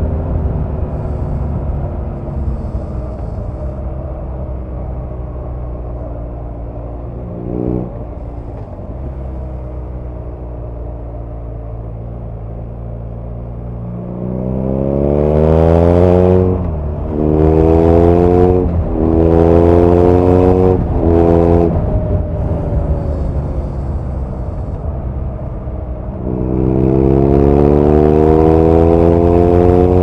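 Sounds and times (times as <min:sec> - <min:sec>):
motorcycle engine accelerating: 0:00.0 - 0:30.0.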